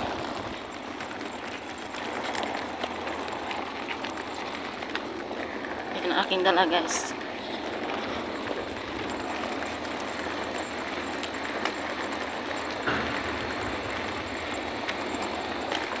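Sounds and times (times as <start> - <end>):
suitcase wheels rumbling on pavement: 0.0 - 16.0
suitcase knocking on bumps: 8.1 - 16.0.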